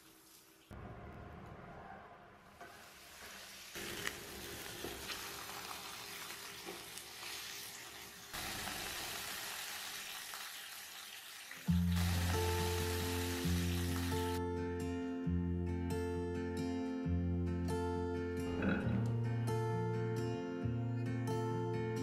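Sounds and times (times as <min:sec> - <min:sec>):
patties sizzling in a frying pan: 0:03.1 - 0:14.2
background music: 0:11.7 - 0:22.0.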